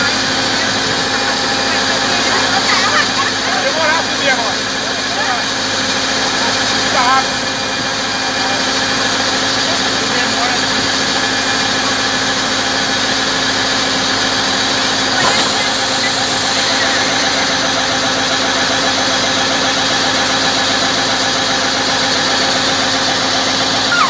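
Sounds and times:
drilling rig engine running: 0:00.0 - 0:24.0.

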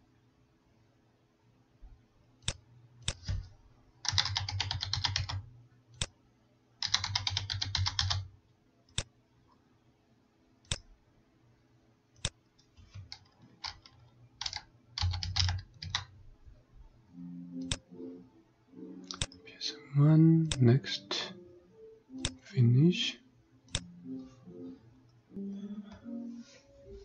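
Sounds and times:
typing on keyboard: 0:04.0 - 0:05.4, 0:06.8 - 0:08.3, 0:12.9 - 0:16.1
mouse clicks: 0:19.0 - 0:19.4.

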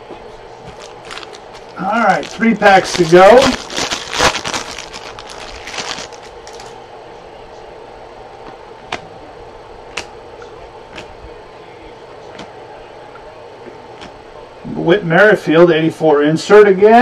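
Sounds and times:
wrapper crinkling: 0:00.7 - 0:06.8.

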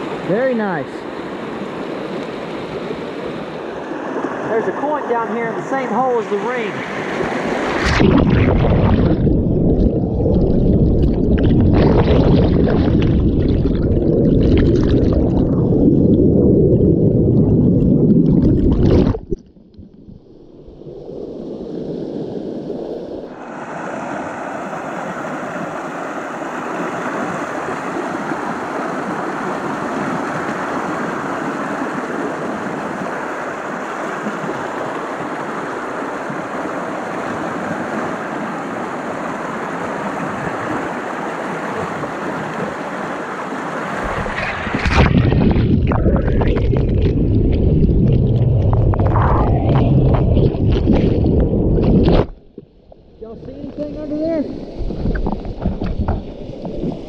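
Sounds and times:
whitewater rushing: 0:00.0 - 0:15.8, 0:23.3 - 0:47.3
river rapids underwater rumble: 0:00.0 - 0:57.0.

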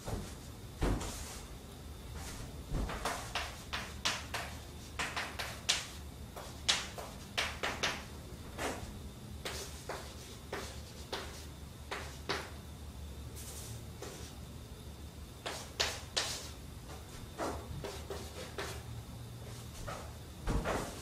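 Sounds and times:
chalk tapping and scraping on chalkboard: 0:02.9 - 0:08.0, 0:09.4 - 0:12.5, 0:13.5 - 0:14.3, 0:15.4 - 0:18.9.

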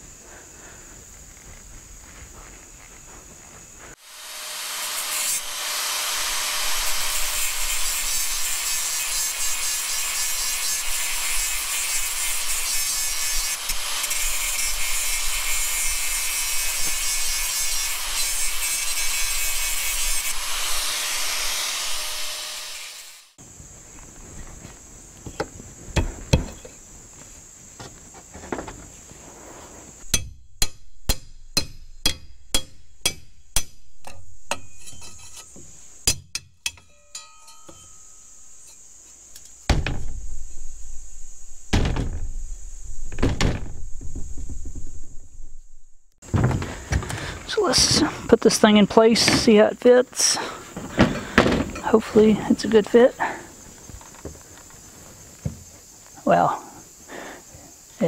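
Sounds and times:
angle grinder cutting wood: 0:04.0 - 0:23.4
knocks: 0:41.7 - 0:42.3, 0:43.1 - 0:44.9.

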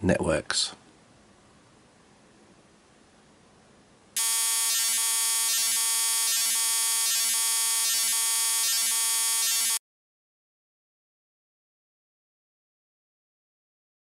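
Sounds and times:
harsh electronic buzz: 0:04.2 - 0:09.8.

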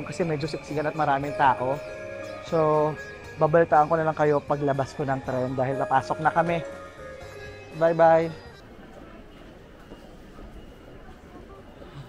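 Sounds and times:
busy train station background noise: 0:00.0 - 0:12.0.

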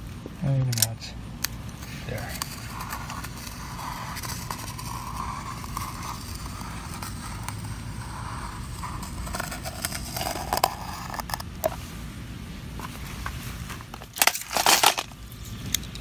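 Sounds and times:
knife scraping through foil mat: 0:02.3 - 0:11.4, 0:13.8 - 0:15.1.

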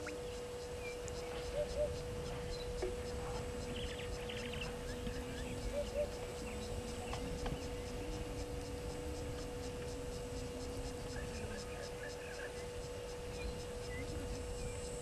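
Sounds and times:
low steady rumble: 0:00.0 - 0:15.0
steady hum: 0:00.0 - 0:15.0.

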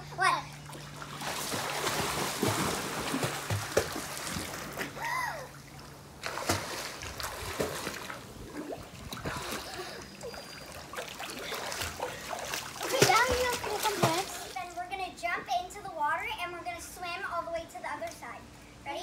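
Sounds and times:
child's voice: 0:00.0 - 0:00.6, 0:12.8 - 0:19.0
pool water splashing: 0:00.0 - 0:15.3.

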